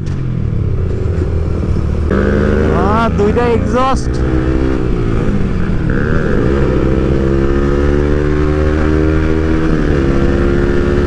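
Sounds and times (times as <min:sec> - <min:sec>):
motorcycle engine cruising: 0:00.0 - 0:11.0.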